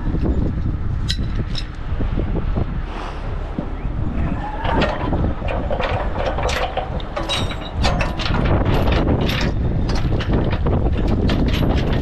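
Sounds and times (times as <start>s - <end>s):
metal chain clinking: 4.6s - 12.0s.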